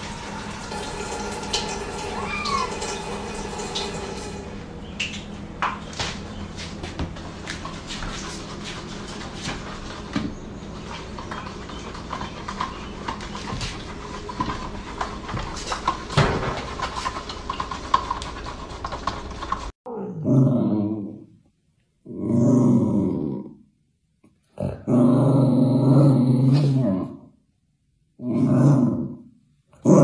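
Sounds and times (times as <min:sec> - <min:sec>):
kitchen clicks and knocks: 0:11.2 - 0:19.7.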